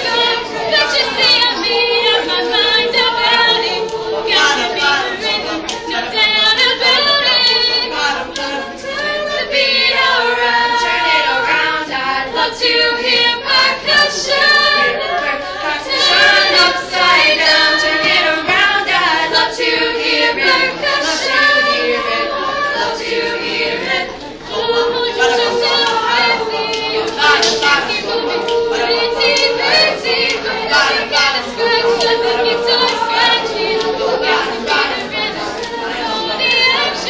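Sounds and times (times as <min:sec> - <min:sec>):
youth choir singing: 0:00.0 - 0:37.0.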